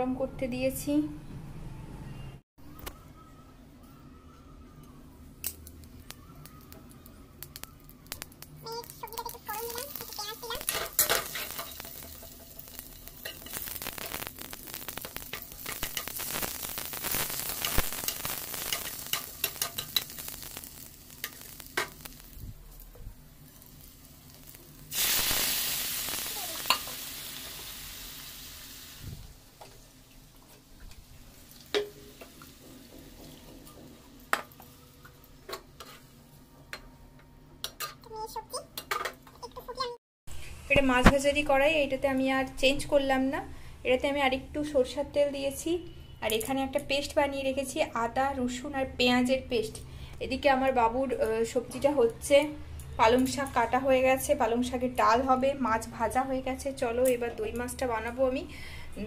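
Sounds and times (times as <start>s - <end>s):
onions sizzling in hot oil: 5.4s - 36.3s, 50.3s - 58.4s.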